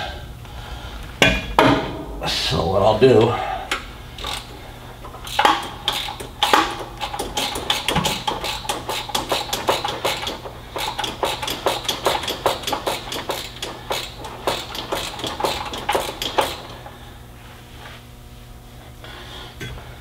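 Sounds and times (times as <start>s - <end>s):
hand ratchet clicking: 4.2s - 16.8s.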